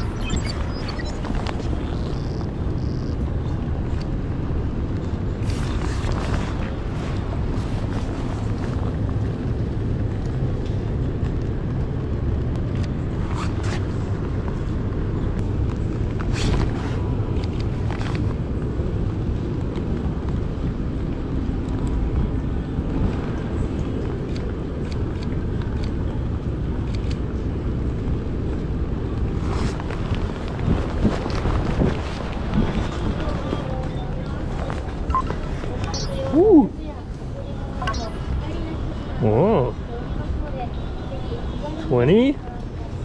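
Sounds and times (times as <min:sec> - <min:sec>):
wind on microphone: 0:28.7 - 0:36.8.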